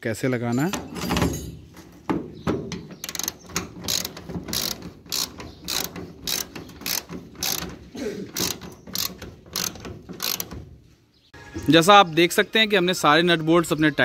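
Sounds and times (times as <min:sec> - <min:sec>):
ratchet wrench clicking: 0:03.0 - 0:10.6.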